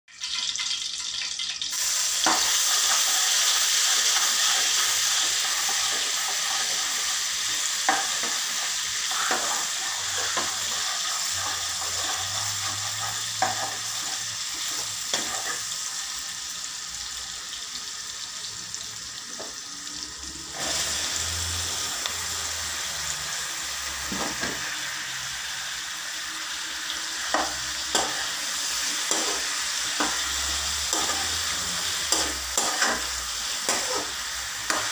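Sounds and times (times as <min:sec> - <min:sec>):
oil sizzling in wok: 0:00.1 - 0:34.9
metal spatula scraping pan: 0:02.2 - 0:15.8, 0:27.2 - 0:34.9.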